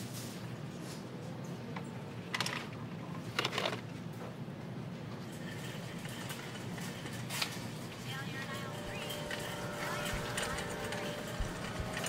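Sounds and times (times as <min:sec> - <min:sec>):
low room hum: 0:00.0 - 0:12.0
plastic clatters: 0:02.3 - 0:03.9.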